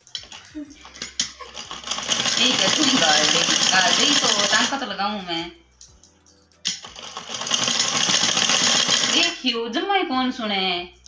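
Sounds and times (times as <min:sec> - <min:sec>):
sewing machine running: 0:01.5 - 0:04.8, 0:06.7 - 0:09.4.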